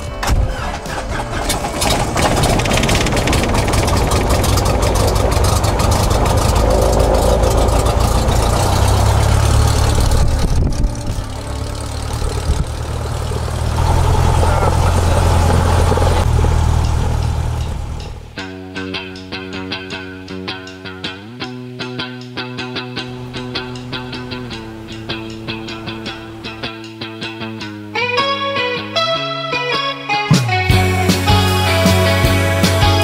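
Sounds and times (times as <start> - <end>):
light aircraft engine idling: 0.2 - 18.4, 22.3 - 27.2.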